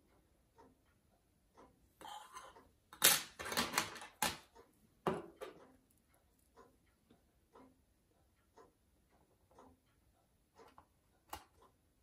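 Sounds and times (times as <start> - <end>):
metal tools knocking on wood: 5.0 - 5.6.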